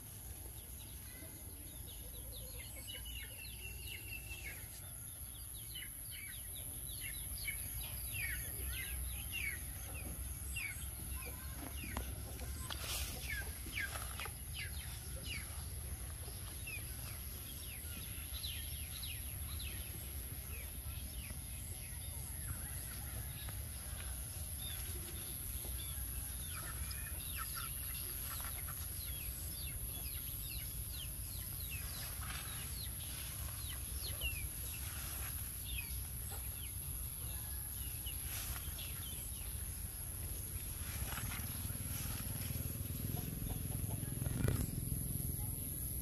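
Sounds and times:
birds chirping: 0:24.9 - 0:37.7.

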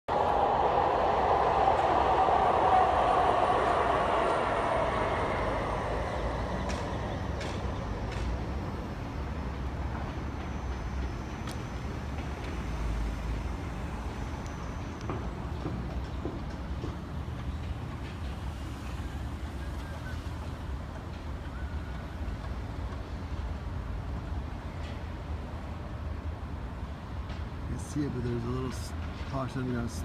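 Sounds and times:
trolley running on tracks: 0:00.1 - 0:30.0.

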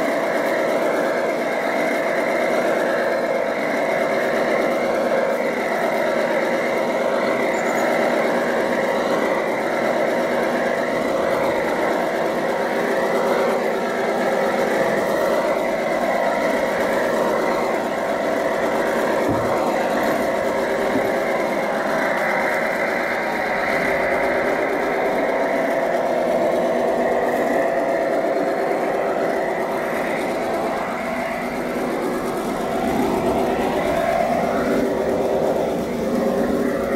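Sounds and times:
diesel engine sound from small speaker: 0:00.0 - 0:36.9
model train rolling on track: 0:00.0 - 0:36.9.

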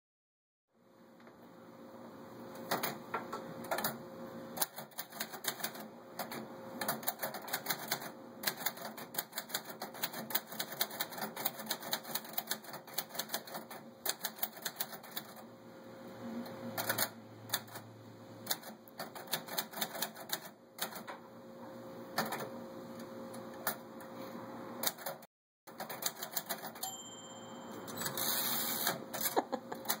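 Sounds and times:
typewriter keys clacking: 0:04.6 - 0:15.4, 0:18.5 - 0:21.1, 0:25.8 - 0:26.9.

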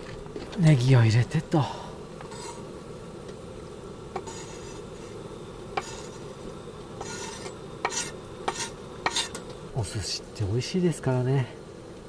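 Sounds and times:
low hiss: 0:00.0 - 0:12.0
knife scraping cutting board: 0:02.3 - 0:02.6, 0:04.2 - 0:05.2, 0:05.8 - 0:06.2, 0:07.0 - 0:09.4.

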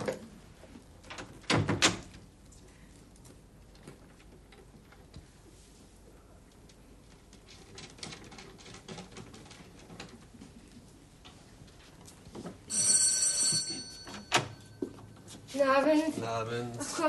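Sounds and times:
electric doorbell ringing: 0:12.7 - 0:14.9.

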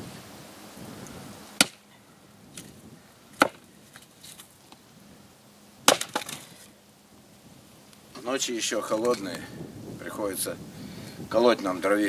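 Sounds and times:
axe splitting firewood: 0:01.6 - 0:01.9, 0:03.4 - 0:04.5, 0:05.8 - 0:06.7.

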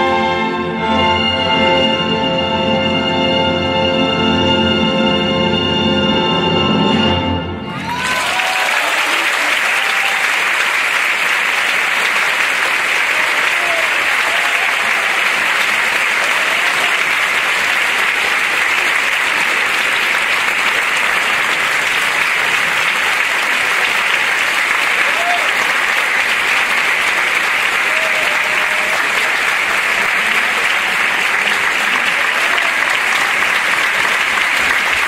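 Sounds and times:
audience applauding: 0:07.7 - 0:35.0.

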